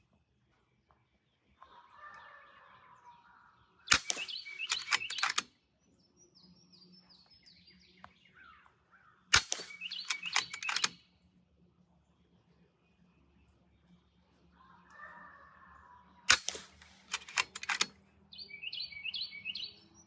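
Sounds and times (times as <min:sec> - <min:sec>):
bird chirping: 0:01.3 - 0:11.1, 0:15.9 - 0:20.0
air rifle shots: 0:03.9 - 0:05.5, 0:09.3 - 0:11.0, 0:16.3 - 0:17.9.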